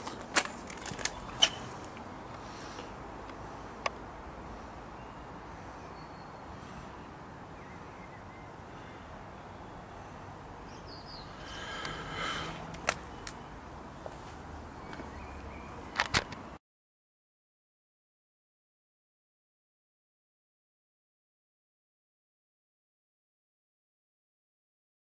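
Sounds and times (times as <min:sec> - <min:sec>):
faint bird chirps: 0:05.8 - 0:11.5.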